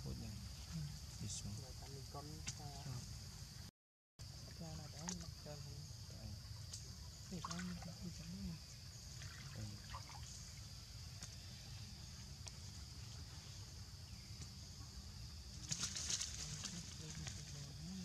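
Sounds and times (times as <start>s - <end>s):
crackling rustle: 15.5s - 18.0s.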